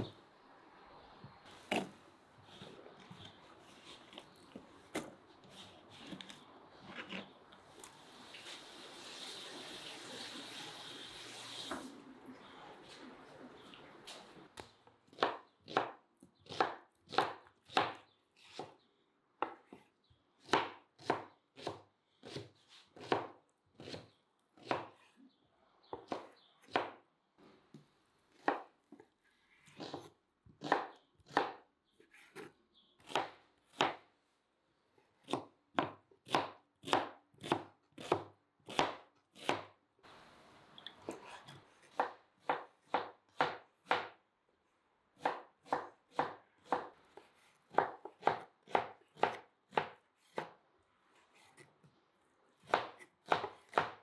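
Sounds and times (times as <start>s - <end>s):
knife chopping on wooden board: 15.1s - 18.7s, 20.4s - 24.0s, 41.2s - 44.2s, 45.2s - 50.6s, 52.6s - 54.0s.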